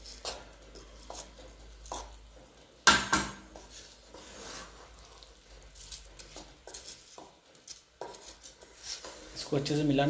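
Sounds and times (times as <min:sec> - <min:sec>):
rice grains scraping and rustling: 0:03.7 - 0:06.2.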